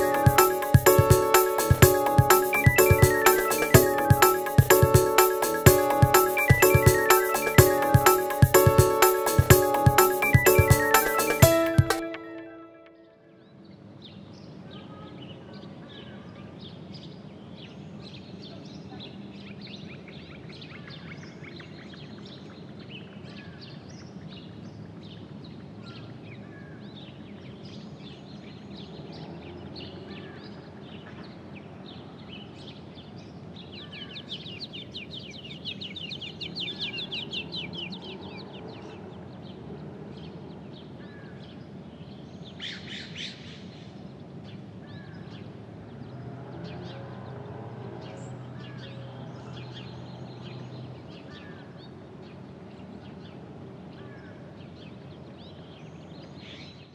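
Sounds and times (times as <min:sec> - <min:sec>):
outdoor background noise: 0:13.3 - 0:56.9.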